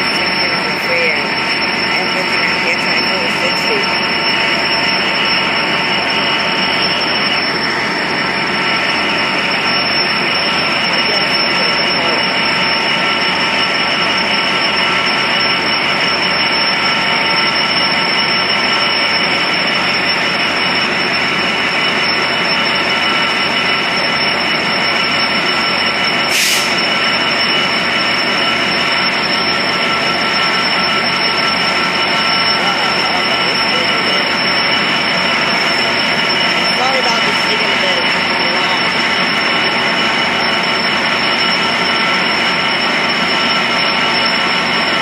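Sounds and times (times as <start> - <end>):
diesel locomotive engine drone: 0.0 - 45.0
engine whine: 0.0 - 45.0.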